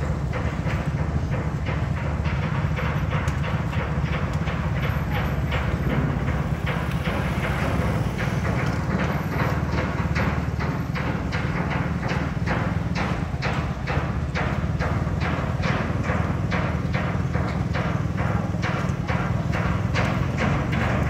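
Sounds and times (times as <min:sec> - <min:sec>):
low rumble: 0:03.1 - 0:12.6.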